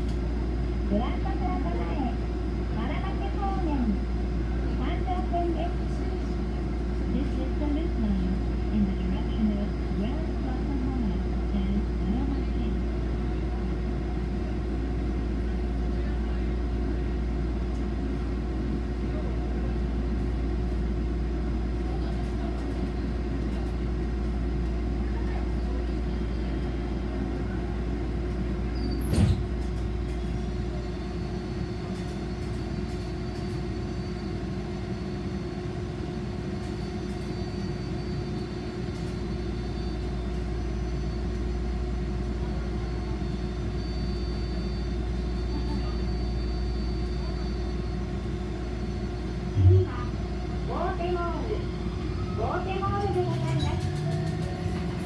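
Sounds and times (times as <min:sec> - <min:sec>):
streetcar rumbling: 0:00.0 - 0:55.0.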